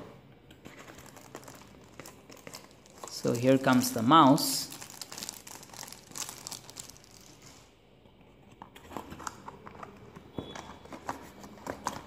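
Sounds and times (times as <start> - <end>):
plastic bag crinkling: 0.7 - 7.7.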